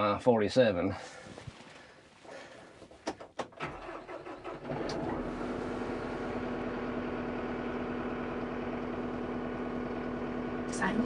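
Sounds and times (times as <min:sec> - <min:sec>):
tractor diesel engine idling: 0:03.6 - 0:11.0.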